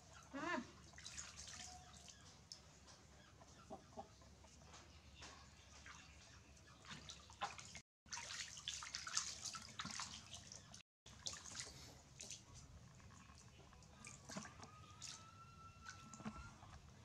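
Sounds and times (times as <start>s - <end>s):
water splashing in plastic basin: 0.8s - 2.2s, 6.8s - 16.5s.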